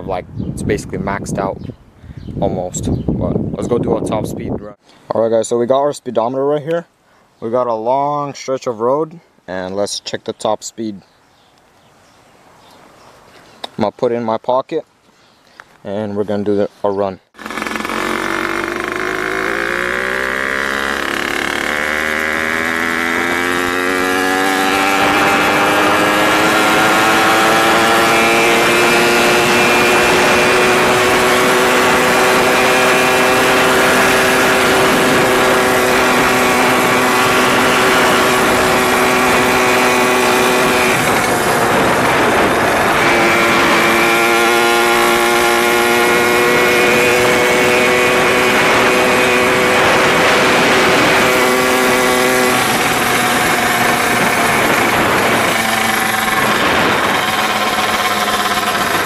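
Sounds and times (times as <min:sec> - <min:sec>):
two-stroke engine at full speed: 0:17.4 - 0:59.0.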